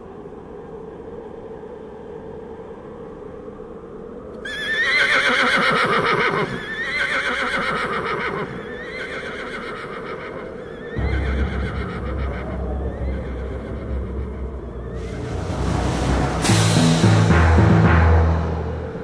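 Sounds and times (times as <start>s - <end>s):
faint steady background: 0.0s - 19.0s
horse whinnying: 4.5s - 11.9s.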